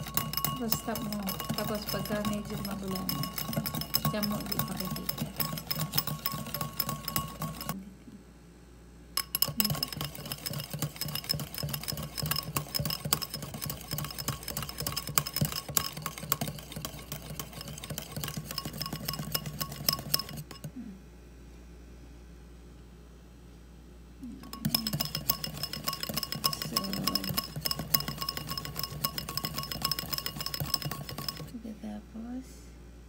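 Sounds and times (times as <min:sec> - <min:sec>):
whisk clinking against bowl: 0:00.0 - 0:07.8, 0:09.2 - 0:20.7, 0:24.4 - 0:31.6.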